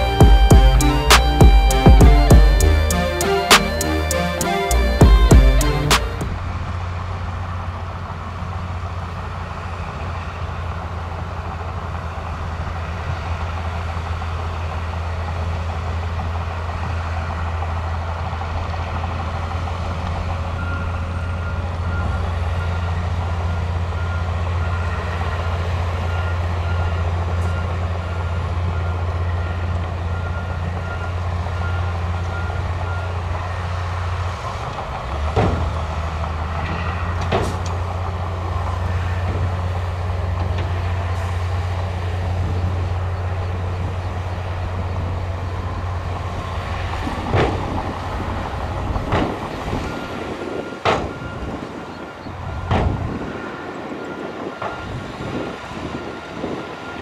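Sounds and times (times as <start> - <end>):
reversing alarm beeping: 0.0 - 6.4, 20.2 - 34.0, 48.3 - 57.0
heavy diesel engines droning: 0.0 - 57.0.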